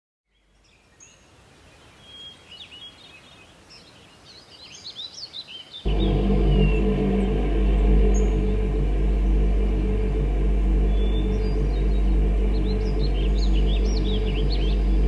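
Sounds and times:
birds chirping and twittering: 0.3s - 15.0s
loud low drone: 5.9s - 15.0s.

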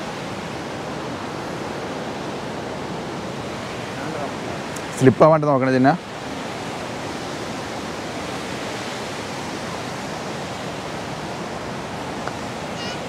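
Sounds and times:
waterfall rushing over rocks: 0.0s - 13.0s.

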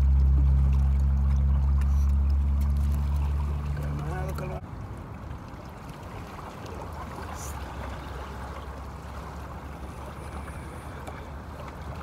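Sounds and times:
water at shoreline: 0.0s - 12.0s
wind: 0.0s - 12.0s.

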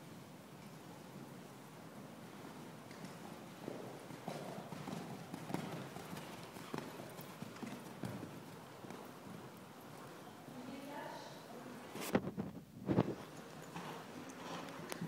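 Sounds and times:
horse hooves trotting on sand: 0.6s - 10.9s, 12.9s - 15.0s.

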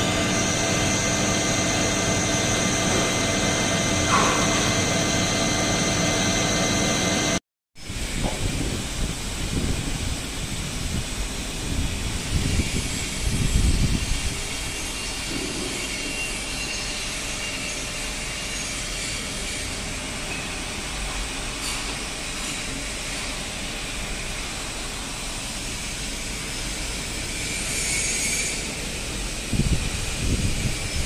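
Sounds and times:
workshop machinery whirring: 0.0s - 7.4s.

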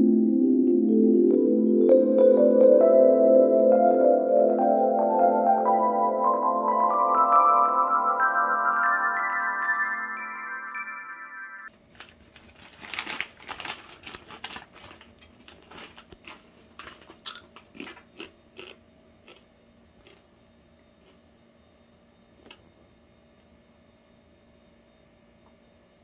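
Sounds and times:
pork rinds crunching by hand: 17.2s - 20.2s.

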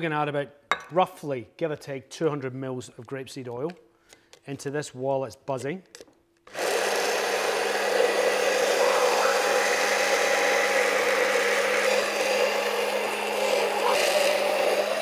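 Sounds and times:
stick blender motor humming: 6.5s - 15.0s.

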